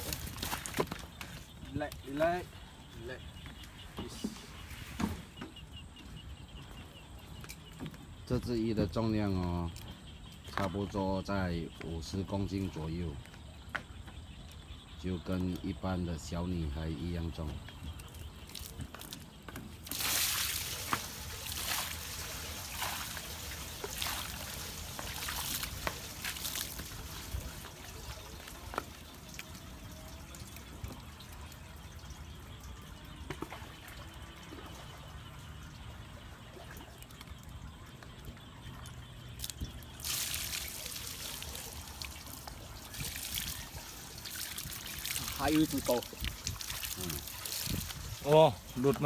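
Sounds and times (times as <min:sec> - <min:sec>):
water splashing from bucket: 0:00.0 - 0:01.5, 0:17.6 - 0:49.0.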